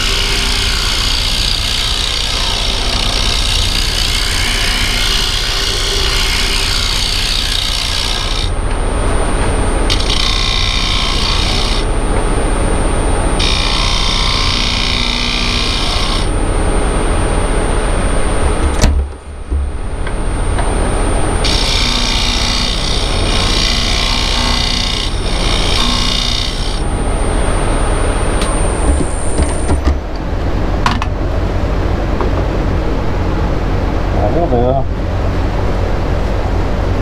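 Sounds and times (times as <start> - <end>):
tool scraping spinning wood: 0.0 - 12.2, 20.1 - 30.0
wood lathe running: 0.0 - 12.2, 13.2 - 16.4, 20.6 - 26.9.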